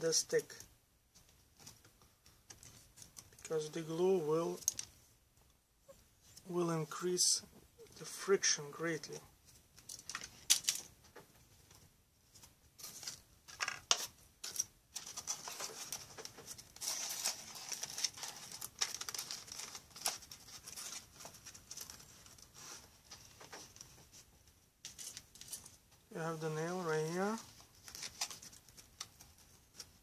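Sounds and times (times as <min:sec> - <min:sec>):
small clicks and taps of parts: 0:04.6 - 0:05.6.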